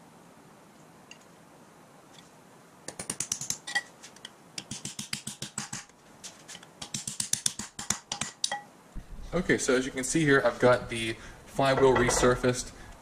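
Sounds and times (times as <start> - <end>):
hammer tapping steel pin: 6.8 - 8.7.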